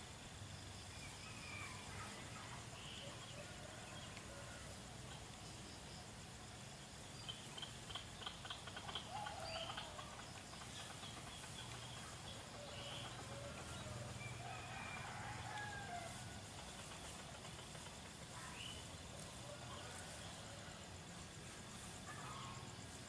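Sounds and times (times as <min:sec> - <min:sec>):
faint rooster crowing: 0:01.2 - 0:04.9, 0:09.0 - 0:10.3, 0:12.4 - 0:17.1, 0:18.3 - 0:21.2
bird chirps: 0:07.1 - 0:14.4.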